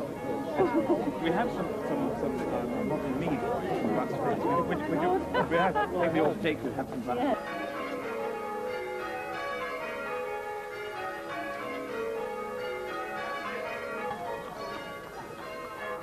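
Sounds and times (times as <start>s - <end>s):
church bells pealing: 0.0s - 16.0s.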